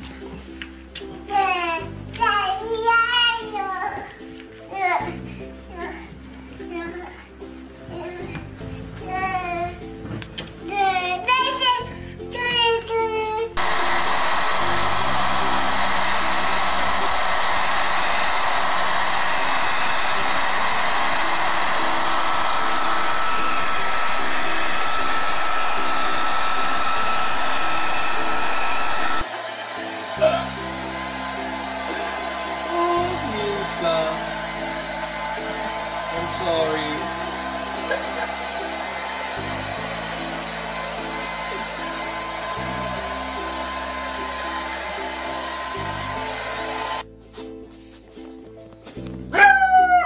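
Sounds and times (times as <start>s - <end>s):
whooshing air noise with whine: 13.6s - 47.0s
hair dryer blowing: 13.6s - 47.1s.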